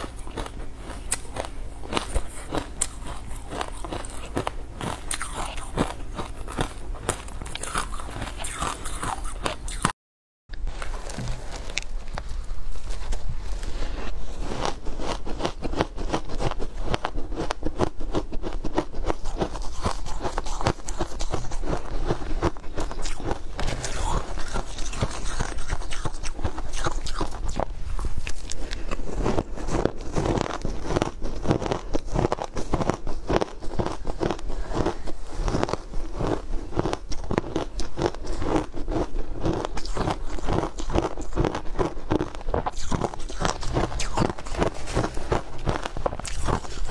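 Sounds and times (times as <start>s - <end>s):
crunching ice: 0.0s - 9.9s, 14.4s - 46.9s.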